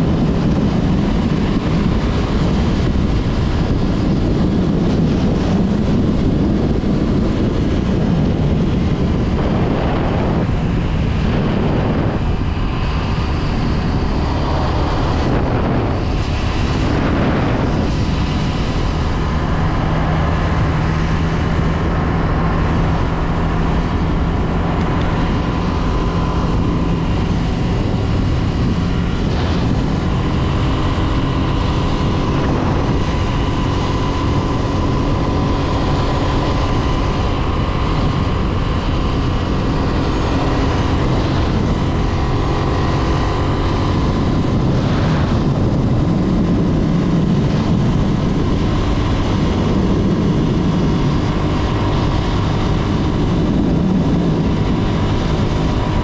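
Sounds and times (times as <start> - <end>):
motorcycle engine running: 0.0 - 56.0
wind and road noise: 0.0 - 56.0.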